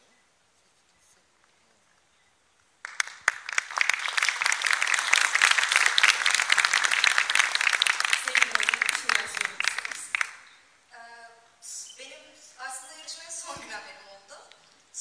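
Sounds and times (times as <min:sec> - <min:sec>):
audience applauding: 0:02.8 - 0:10.5.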